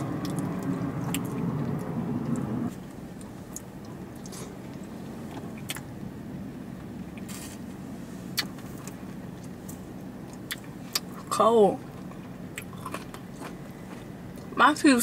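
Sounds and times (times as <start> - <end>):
chewing: 0.0 - 2.4, 11.9 - 14.6
car cabin hum: 0.0 - 14.0.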